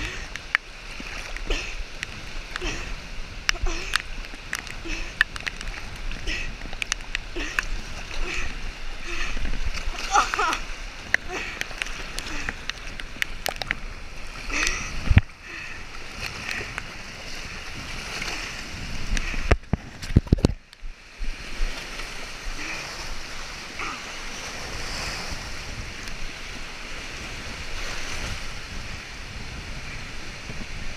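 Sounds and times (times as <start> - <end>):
water splashing over dock and rocks: 0.0 - 30.9
wind on microphone: 0.0 - 30.9.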